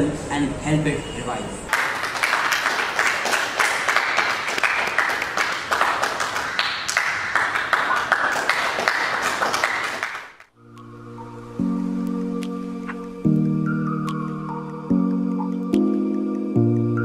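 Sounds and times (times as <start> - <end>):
audience applauding: 1.7 - 10.5.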